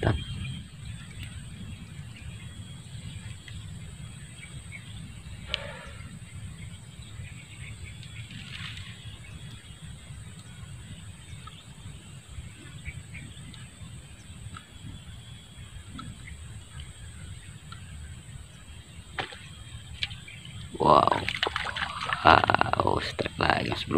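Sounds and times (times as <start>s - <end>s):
short animal calls: 5.4s - 6.1s.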